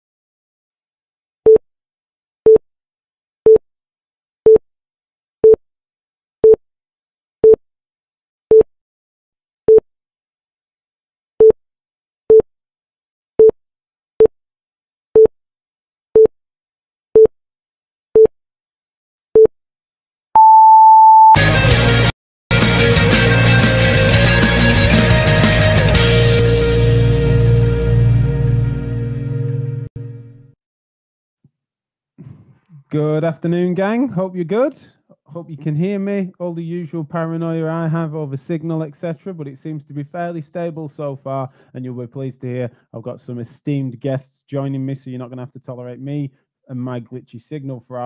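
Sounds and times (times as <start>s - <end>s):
loud rock music: 21.4s - 29.8s.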